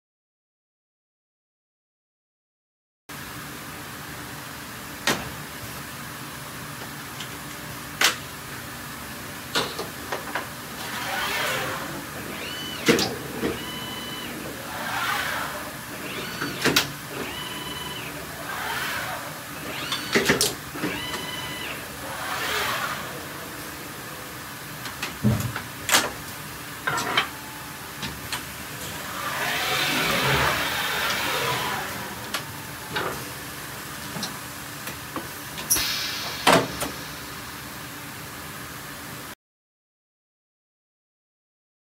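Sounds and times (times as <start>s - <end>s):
high motor whines: 10.6s - 25.2s, 26.8s - 34.2s
servo axes whirring: 10.6s - 26.0s, 26.8s - 33.5s.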